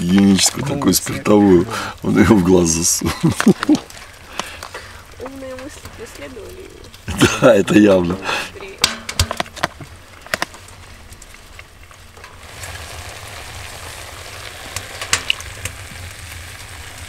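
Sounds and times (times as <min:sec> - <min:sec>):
food sizzling in a pot: 0:12.0 - 0:17.0.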